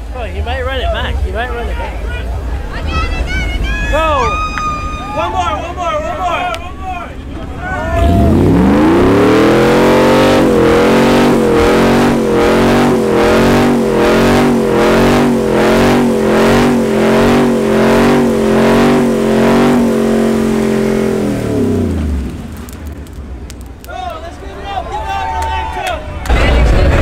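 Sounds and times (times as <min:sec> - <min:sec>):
truck engine revving hard: 0:07.5 - 0:23.1.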